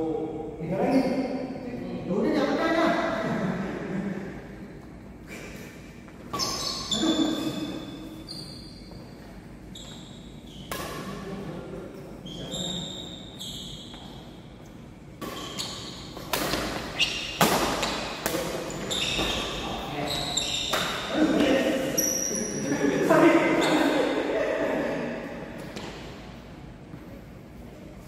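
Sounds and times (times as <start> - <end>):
shoes squeaking on court floor: 6.0 - 11.2, 12.0 - 22.7, 23.3 - 24.2
rackets hitting shuttlecock: 10.6 - 11.2, 15.2 - 19.6, 20.6 - 21.6.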